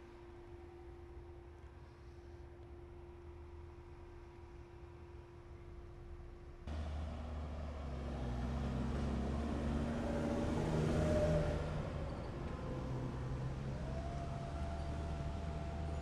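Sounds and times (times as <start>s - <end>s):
vehicle engine rumbling: 6.7s - 16.0s.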